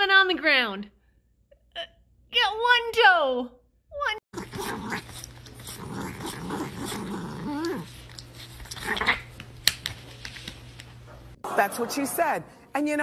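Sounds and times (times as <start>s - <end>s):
pet growling: 4.3s - 9.3s
pet whining: 4.3s - 9.6s.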